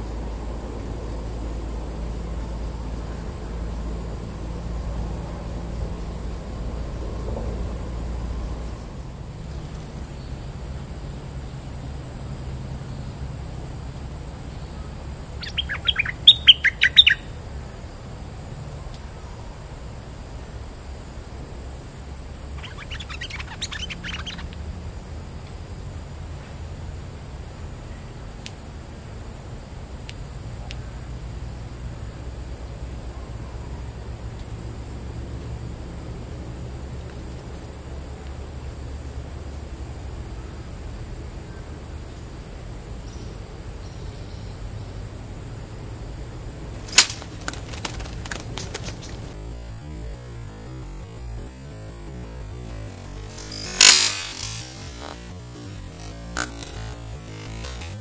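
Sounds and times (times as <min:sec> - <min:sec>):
bird song chirping: 0:14.7 - 0:17.4, 0:22.5 - 0:24.6, 0:46.8 - 0:49.4, 0:52.0 - 0:58.0
high-pitched hum: 0:22.1 - 0:24.8, 0:46.8 - 0:58.0.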